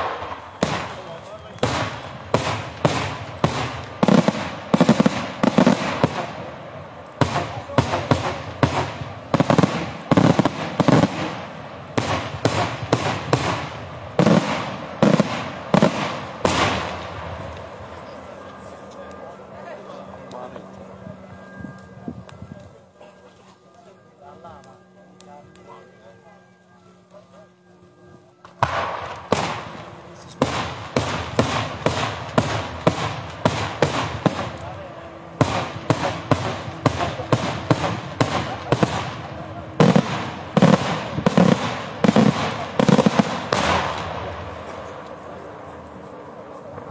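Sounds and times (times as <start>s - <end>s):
fireworks bangs with echo: 0.0s - 18.2s, 28.5s - 45.1s.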